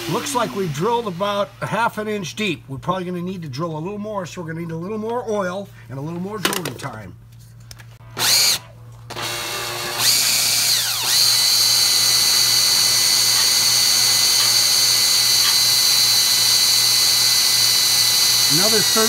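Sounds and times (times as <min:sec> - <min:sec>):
cordless drill whining: 0:00.0 - 0:01.6, 0:08.2 - 0:19.0.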